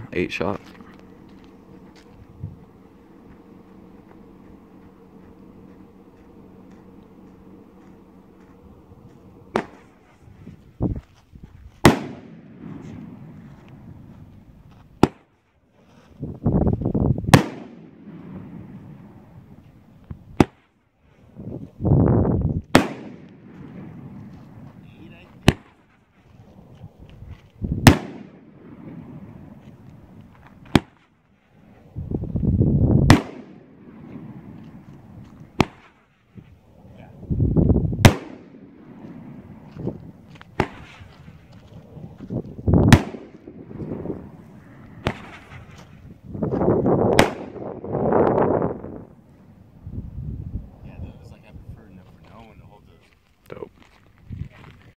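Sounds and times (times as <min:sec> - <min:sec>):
sharp firework crack: 0:09.5 - 0:10.2, 0:11.8 - 0:13.9, 0:15.0 - 0:15.3, 0:17.2 - 0:19.3, 0:20.3 - 0:20.8, 0:22.6 - 0:26.0, 0:27.8 - 0:31.2, 0:33.0 - 0:36.1, 0:38.0 - 0:39.7, 0:40.3 - 0:41.5, 0:42.8 - 0:46.1, 0:46.9 - 0:48.9
firework bangs: 0:09.5 - 0:10.4, 0:11.8 - 0:14.1, 0:15.0 - 0:15.3, 0:17.2 - 0:19.6, 0:20.3 - 0:20.8, 0:22.6 - 0:26.0, 0:27.7 - 0:31.2, 0:33.0 - 0:36.1, 0:38.0 - 0:41.5, 0:42.7 - 0:49.2
roman candle shots whooshing: 0:33.0 - 0:36.0, 0:40.5 - 0:41.5, 0:42.8 - 0:46.2, 0:47.0 - 0:48.4.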